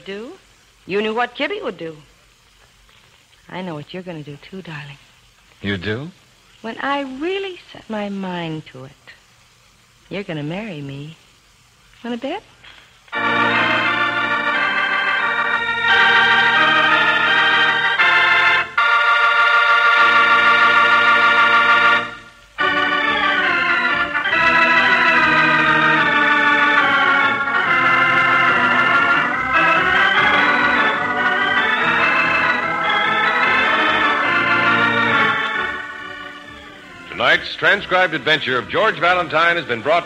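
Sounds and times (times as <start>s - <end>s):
organ chords: 12.7s - 40.0s.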